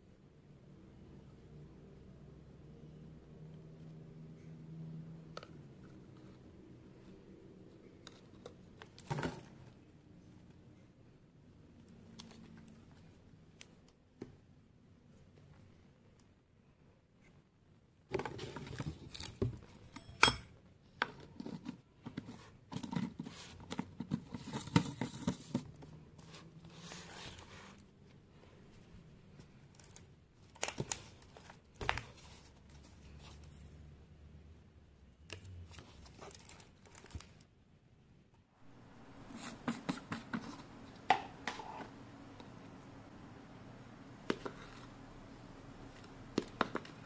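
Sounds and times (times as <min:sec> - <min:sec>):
plastic scraping and rustling: 0:21.0 - 0:27.9, 0:35.3 - 0:37.5.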